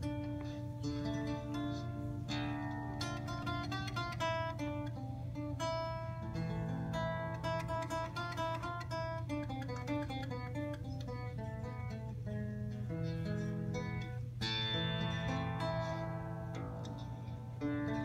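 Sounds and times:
plucked bass lute melody: 0.0 - 18.0.

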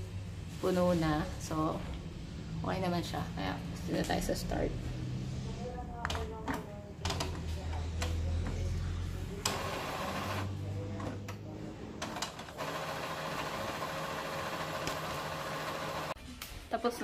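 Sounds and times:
printer mechanism whirring: 9.4 - 10.5, 12.0 - 16.2.

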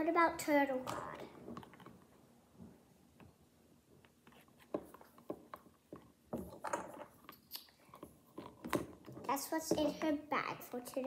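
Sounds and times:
doll accessories clicking and rustling: 0.7 - 2.2, 4.0 - 11.0.

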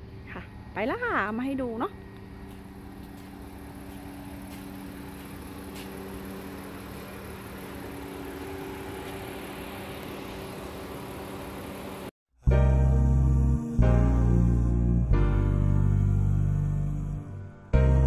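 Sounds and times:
engine idling: 2.1 - 12.1.

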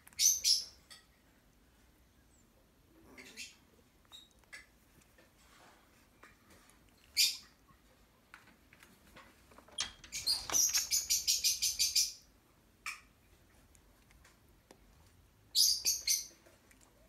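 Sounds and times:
puppies squeaking: 6.9 - 7.6.

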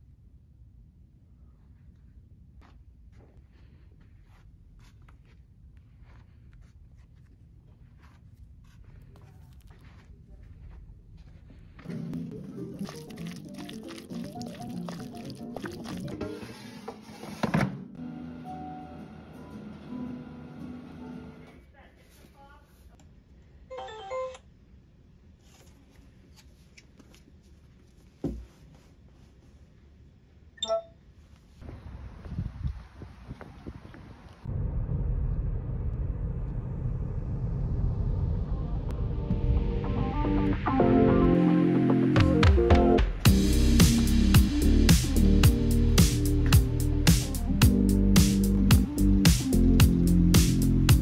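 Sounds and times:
book pages rustling: 25.4 - 29.6
barcode scanner beep tune: 30.6 - 31.0
low room rumble: 34.5 - 40.3.

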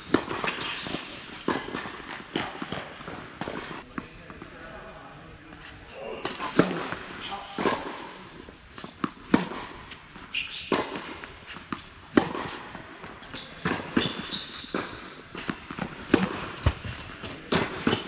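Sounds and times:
racket hitting tennis ball: 0.0 - 4.0, 6.2 - 18.0
tennis ball bounces: 0.0 - 4.0, 8.8 - 18.0
short high shoe squeak: 0.4 - 1.2, 10.3 - 10.9, 13.2 - 14.8.

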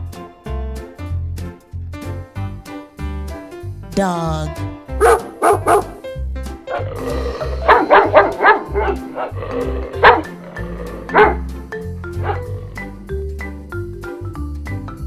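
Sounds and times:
cheerful background music: 0.0 - 15.0
dog barking: 5.0 - 6.0, 7.6 - 10.4, 11.1 - 11.5, 12.2 - 12.6.

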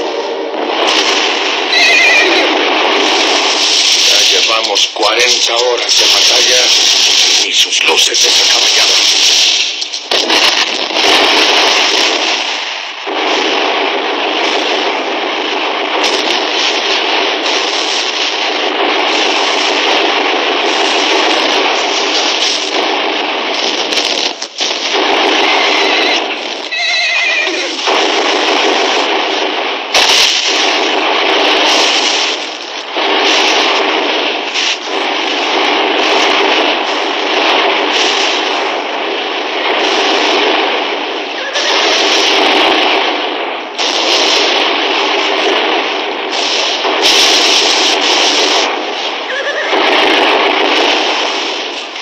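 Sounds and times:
explosions: 0.0 - 52.0
rifle and machine-gun fire: 0.0 - 52.0
horse whinnying: 26.7 - 27.8, 49.3 - 49.7.

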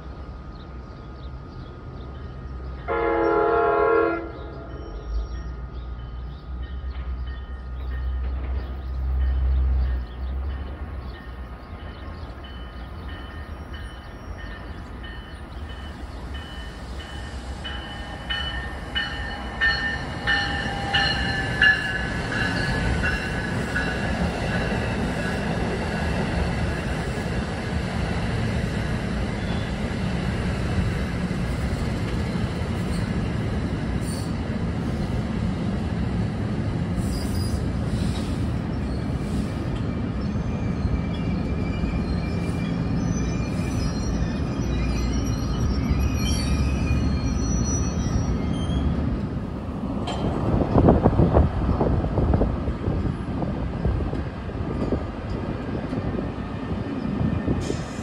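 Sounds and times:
train horn blast: 2.9 - 4.8
train wheels rumbling and clicking: 5.1 - 47.3, 48.3 - 58.0.

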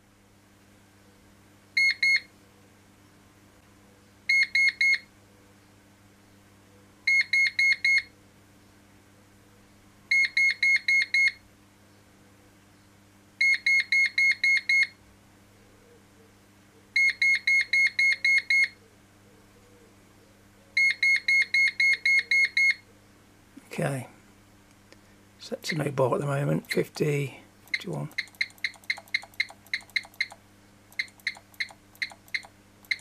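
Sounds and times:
short high-pitched electronic beeps: 27.7 - 30.4, 31.0 - 33.0.

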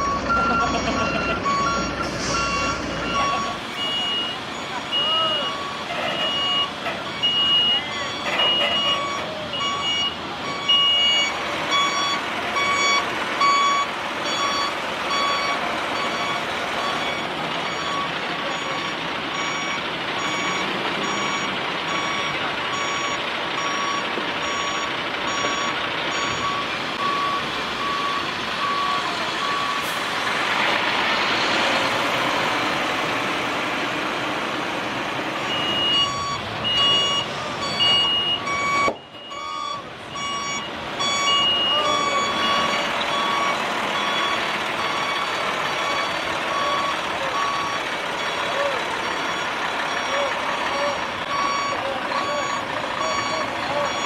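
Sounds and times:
truck engine running: 0.0 - 54.0
truck reversing alarm beeping: 0.0 - 54.0.

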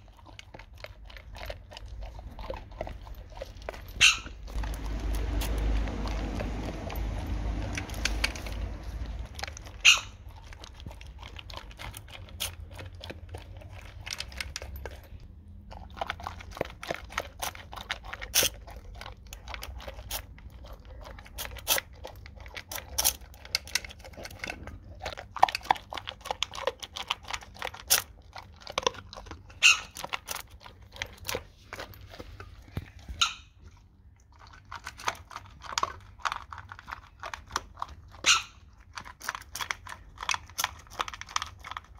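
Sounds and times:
dog crunching dry kibble: 0.0 - 41.9.

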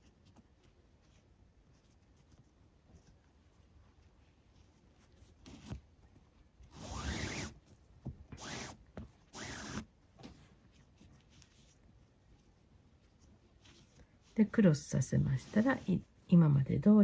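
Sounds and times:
cord sliding through a weave: 6.6 - 7.7, 8.3 - 14.4.

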